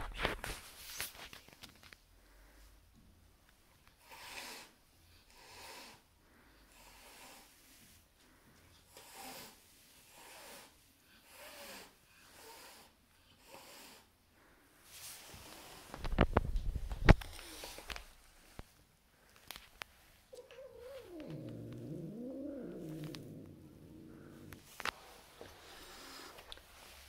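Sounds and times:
cat hissing: 0:20.4 - 0:24.8.

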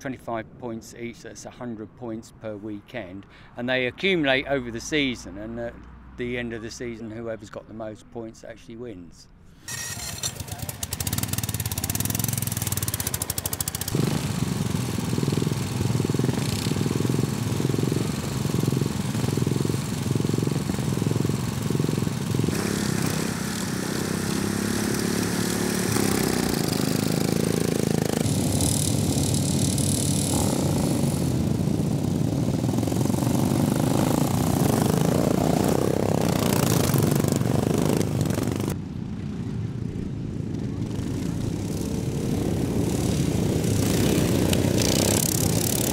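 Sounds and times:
lawn mower engines revving: 0:09.6 - 0:45.9.

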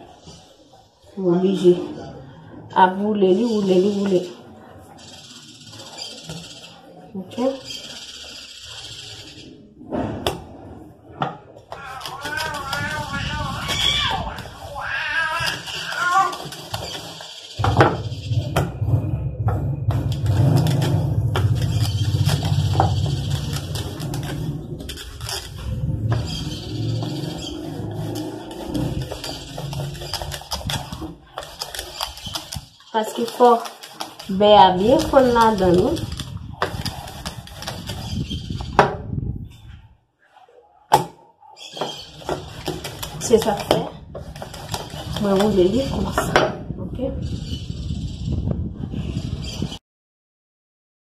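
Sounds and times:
rolling pin rolling dough: 0:08.0 - 0:39.0, 0:41.7 - 0:46.4.

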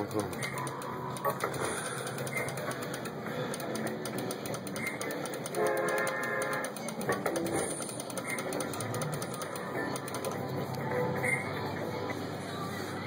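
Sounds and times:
slot machine game sounds: 0:00.0 - 0:10.5.

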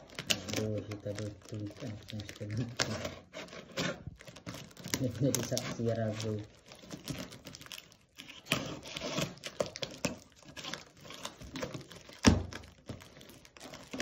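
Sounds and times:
tape and cardboard crinkling: 0:00.0 - 0:14.0
box cutter slicing tape: 0:08.2 - 0:12.6.

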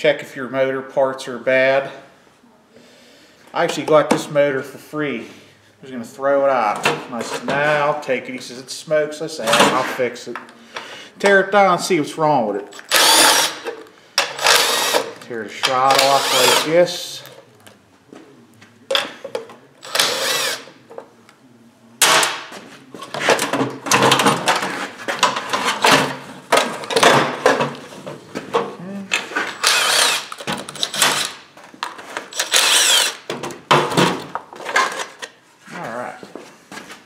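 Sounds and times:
impact driver whining: 0:12.8 - 0:15.2, 0:15.8 - 0:16.8, 0:19.8 - 0:20.7, 0:29.6 - 0:31.4, 0:32.3 - 0:33.3.

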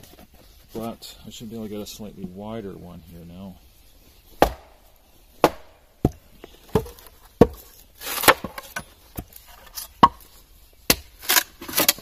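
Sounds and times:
froe knocking and splitting wood: 0:04.3 - 0:12.0
wood tearing crackle: 0:11.2 - 0:12.0.

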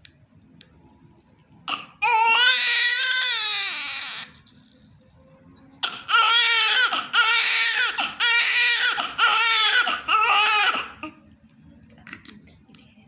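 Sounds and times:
newborn baby crying: 0:01.7 - 0:04.4, 0:05.8 - 0:11.2.

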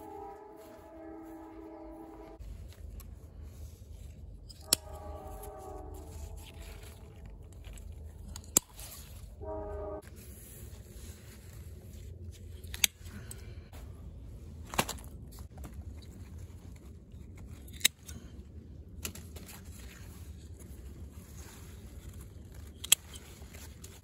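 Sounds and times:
leaves rustling: 0:00.0 - 0:12.6
scissors snipping stems: 0:04.4 - 0:09.2, 0:17.4 - 0:18.3, 0:22.6 - 0:23.2.

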